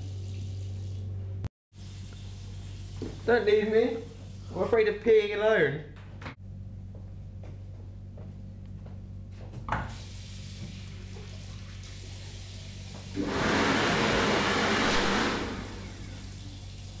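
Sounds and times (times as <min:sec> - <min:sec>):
low electrical hum: 0:00.0 - 0:13.2, 0:14.4 - 0:17.0
urinal flushing: 0:09.9 - 0:17.0.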